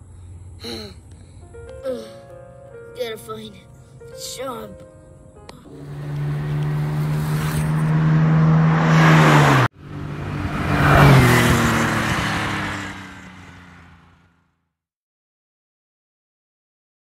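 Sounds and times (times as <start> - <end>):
car engine approaching: 3.8 - 14.6
car passing by: 5.7 - 14.4.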